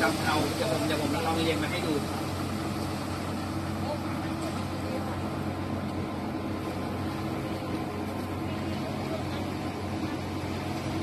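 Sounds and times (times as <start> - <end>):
truck engine running steadily: 0.0 - 11.0.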